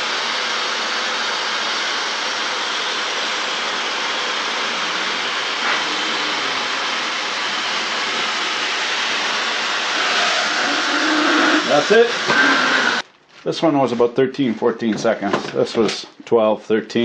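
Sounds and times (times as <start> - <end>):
hair dryer blowing air: 0.0 - 13.0.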